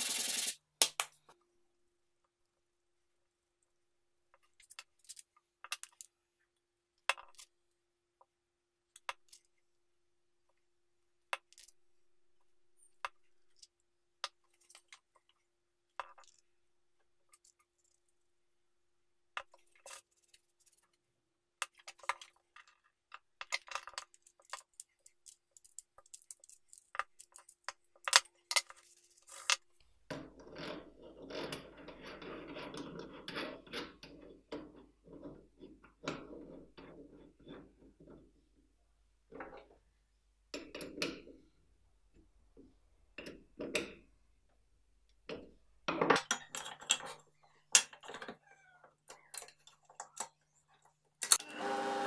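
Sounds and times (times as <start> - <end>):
sandpaper scratching on wood: 0.0 - 0.6.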